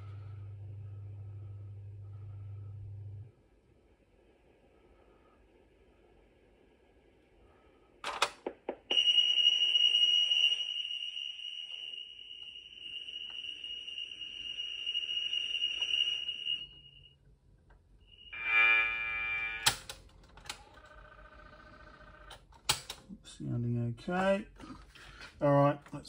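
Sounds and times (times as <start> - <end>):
lower steady tone: 0.0 - 8.0, 8.8 - 21.9
high steady whistle: 8.8 - 17.3, 18.0 - 19.9
buzzy data tone: 8.9 - 17.1, 18.0 - 19.9
loud click: 19.6 - 20.6.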